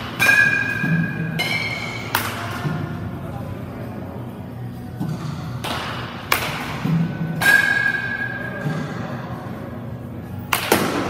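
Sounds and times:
bat ringing ping: 0.0s - 2.2s, 7.4s - 8.6s
baseball bat hitting balls: 0.0s - 3.0s, 5.0s - 9.0s, 10.3s - 11.0s.

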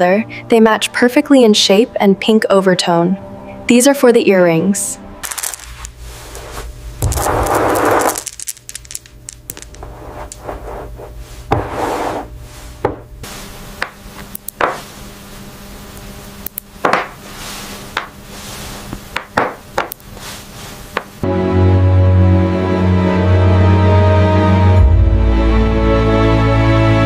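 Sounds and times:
pearls clicking together: 5.2s - 5.9s, 7.0s - 10.4s.

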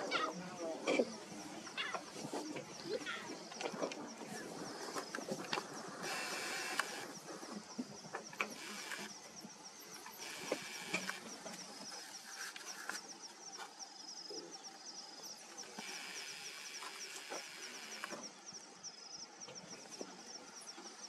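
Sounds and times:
crickets chirping: 0.0s - 21.0s
sharp clicks: 6.0s - 7.1s, 8.4s - 9.1s, 10.3s - 11.3s, 15.8s - 18.2s.

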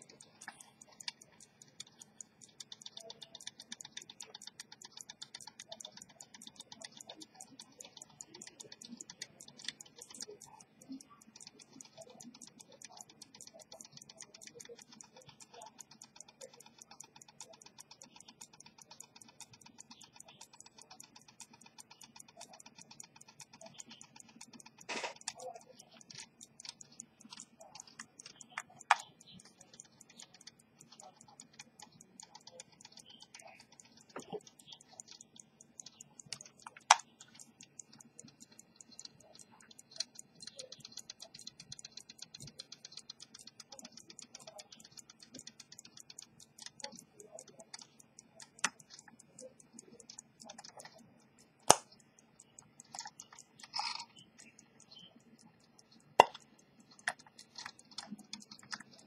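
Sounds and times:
pocket watch ticking: 0.0s - 59.0s.

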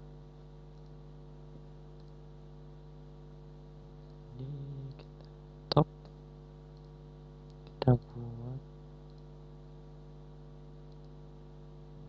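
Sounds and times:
electrical mains hum: 0.0s - 12.0s
computer mouse clicks: 0.7s - 1.0s, 2.0s - 2.2s, 4.9s - 7.8s, 9.0s - 9.4s, 10.9s - 11.2s.

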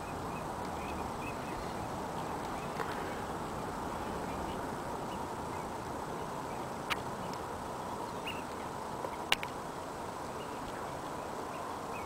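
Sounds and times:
distant waterfowl calling: 0.0s - 3.3s, 8.2s - 9.4s
steady outdoor background hiss: 0.0s - 12.0s.

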